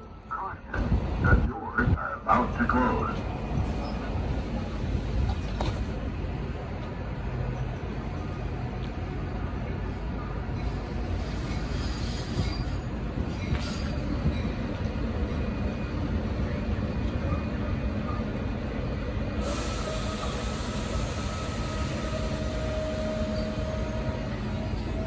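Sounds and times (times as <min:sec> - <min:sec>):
train rumbling: 0:00.0 - 0:25.0
faint thin squeal: 0:11.4 - 0:14.6, 0:22.9 - 0:24.1.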